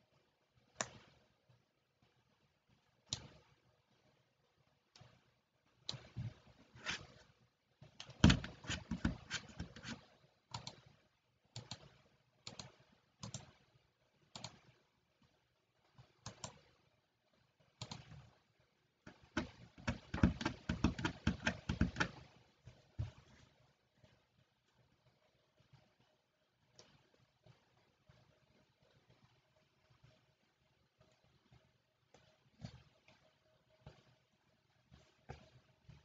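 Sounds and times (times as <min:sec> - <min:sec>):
typing on computer keyboard: 0:08.0 - 0:10.9, 0:11.6 - 0:13.6, 0:19.1 - 0:22.3.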